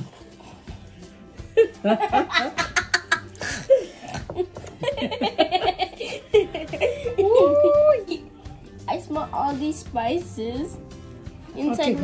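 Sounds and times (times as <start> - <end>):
person laughing: 1.5 - 8.3.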